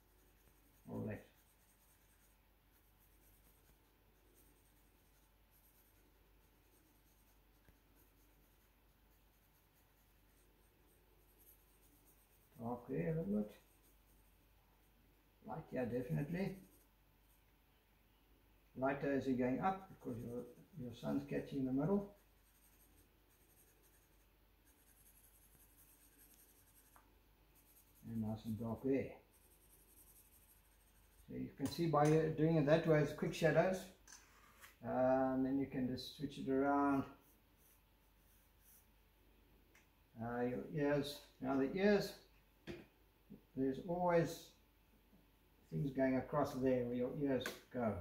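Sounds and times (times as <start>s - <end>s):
pencil scratching on paper: 0.0s - 14.4s, 15.8s - 17.0s, 19.3s - 31.8s, 37.0s - 38.9s.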